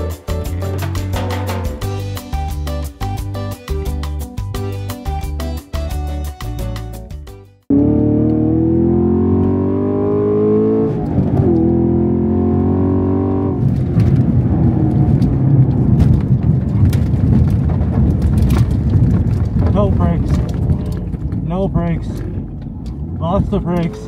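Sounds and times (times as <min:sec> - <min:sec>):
car engine revving: 0:07.7 - 0:16.0
car rumbling over grass: 0:10.8 - 0:24.0.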